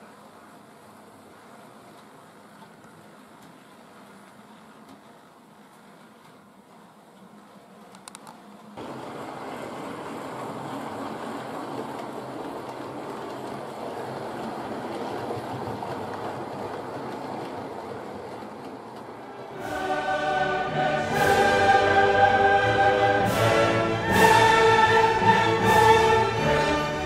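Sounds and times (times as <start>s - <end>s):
orchestral music: 19.2s - 27.0s.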